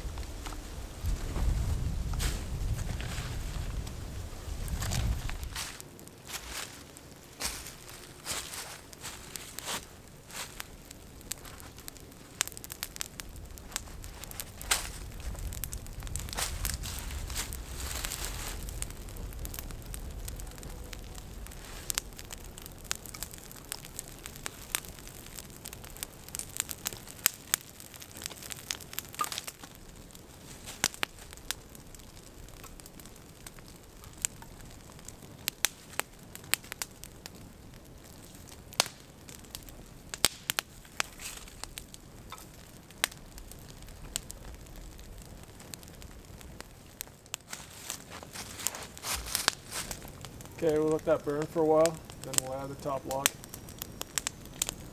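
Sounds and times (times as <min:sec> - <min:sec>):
wood fire crackling and popping: 0:00.0 - 0:54.9.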